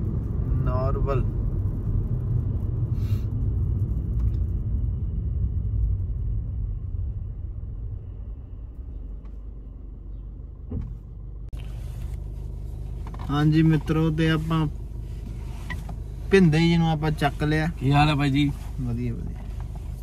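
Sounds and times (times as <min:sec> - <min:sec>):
car road and engine rumble: 0:00.0 - 0:20.0
short rustle: 0:10.8 - 0:13.8, 0:14.4 - 0:20.0.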